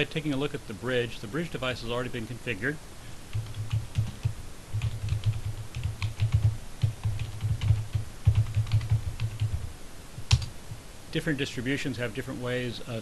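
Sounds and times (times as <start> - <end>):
fast typing on keyboard: 3.3 - 9.7, 10.3 - 10.5.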